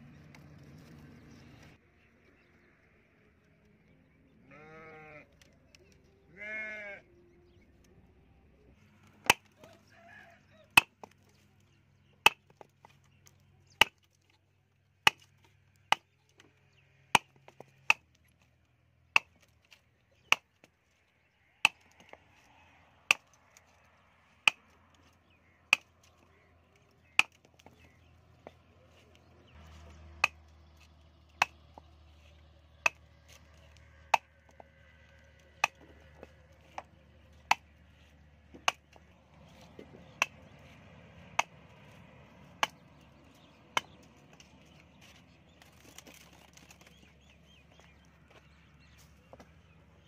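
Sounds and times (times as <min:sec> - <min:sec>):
farm animal bleating: 0:04.3 - 0:07.4.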